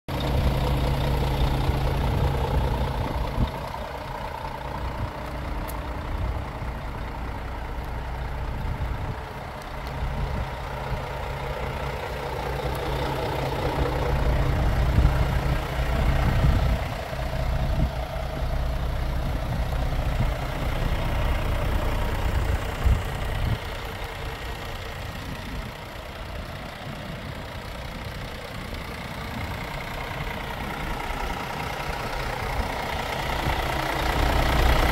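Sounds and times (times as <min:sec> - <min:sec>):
diesel truck engine idling: 0:00.1 - 0:34.9.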